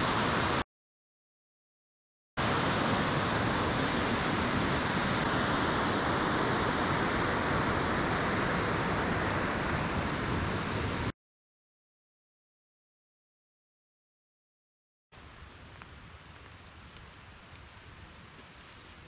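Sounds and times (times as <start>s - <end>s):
rushing water: 0.0s - 0.6s, 2.4s - 11.1s.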